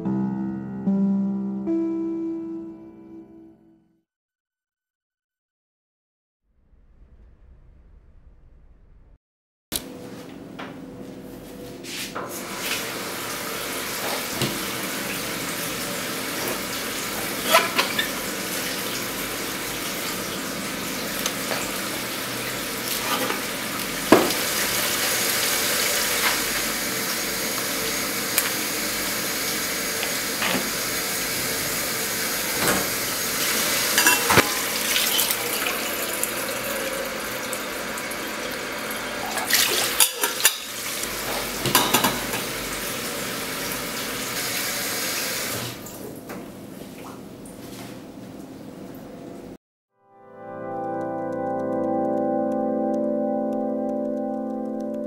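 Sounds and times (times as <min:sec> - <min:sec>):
dishes and utensils clinking: 0:17.4 - 0:18.2, 0:34.0 - 0:35.4, 0:39.2 - 0:42.5
tap running into sink: 0:24.1 - 0:24.8.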